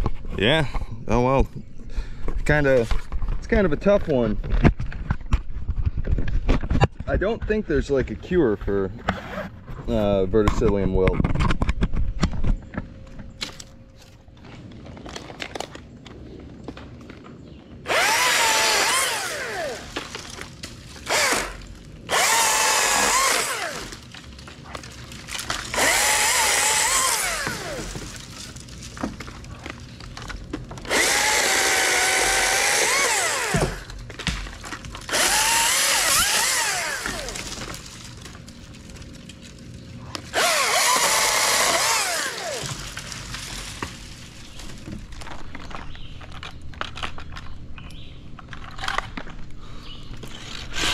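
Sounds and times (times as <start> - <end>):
chainsaw revving and cutting wood: 17.8 - 20.4, 21.0 - 24.1, 25.3 - 28.2, 30.8 - 34.0, 35.0 - 37.7, 40.2 - 43.8
chainsaw idling: 17.9 - 20.0, 21.0 - 24.0, 25.7 - 28.0, 30.9 - 33.9, 35.1 - 37.5, 40.3 - 43.0.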